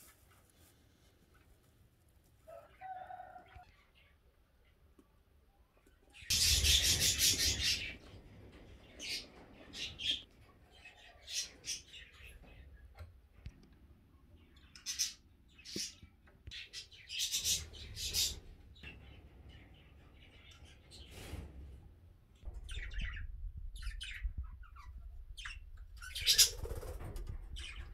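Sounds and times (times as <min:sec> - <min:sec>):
budgerigars chirping: 0:06.3 - 0:08.0, 0:23.8 - 0:26.8.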